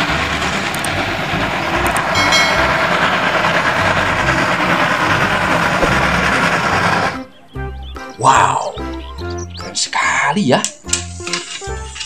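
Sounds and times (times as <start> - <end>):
steam locomotive exhaust: 0.0 - 7.7
rolling train wheels: 0.0 - 8.0.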